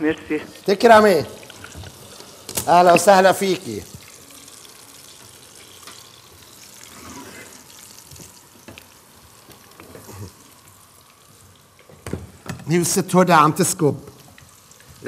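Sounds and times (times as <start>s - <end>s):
food frying in hot oil: 0.1s - 15.0s.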